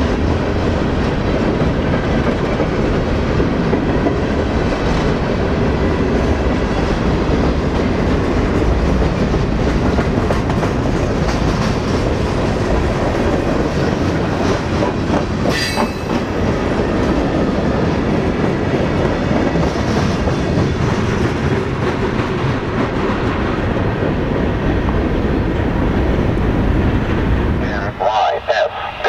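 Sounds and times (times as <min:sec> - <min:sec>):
steel wheels rolling on rail: 0:00.0 - 0:27.9
high wheel squeal: 0:15.5 - 0:16.4.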